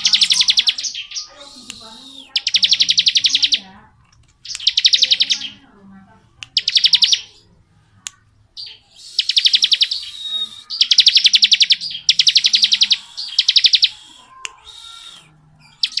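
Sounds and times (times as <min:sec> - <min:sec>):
bird singing buzzing trills: 0:00.0 - 0:03.7, 0:04.4 - 0:05.6, 0:08.6 - 0:16.0.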